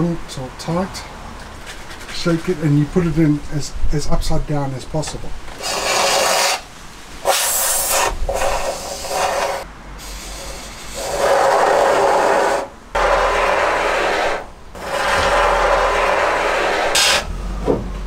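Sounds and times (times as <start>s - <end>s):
aerosol foam spraying hiss: 7.2s - 11.6s.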